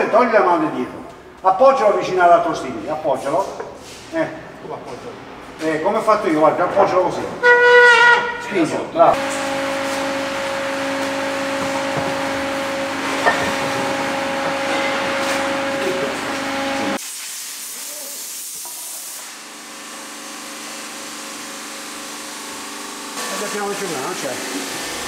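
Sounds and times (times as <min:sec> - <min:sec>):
machine humming and hissing: 0:09.1 - 0:25.0.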